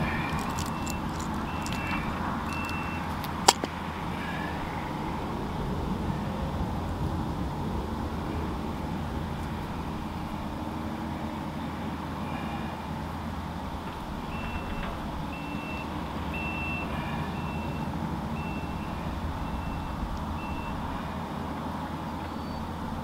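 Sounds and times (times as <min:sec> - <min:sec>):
low engine rumble: 0:00.0 - 0:23.0
back-up alarm beeping: 0:00.5 - 0:03.2.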